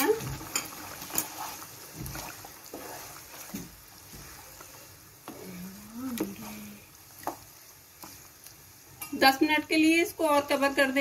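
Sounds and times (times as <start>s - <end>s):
spatula scraping a pan: 0.1s - 5.6s.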